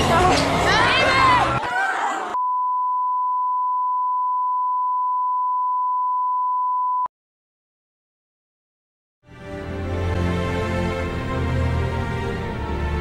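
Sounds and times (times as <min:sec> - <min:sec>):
voices: 0:00.0 - 0:02.4
high test tone beep: 0:02.4 - 0:07.1.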